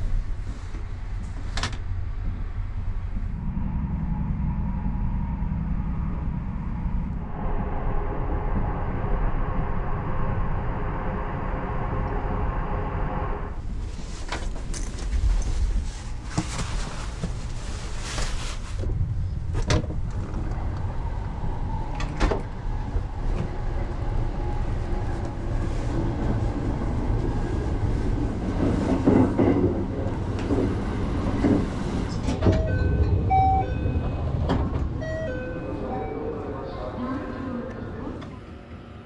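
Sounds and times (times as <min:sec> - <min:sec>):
train carriage rumble: 0:00.0 - 0:39.0
electronic chime melody: 0:35.0 - 0:36.3.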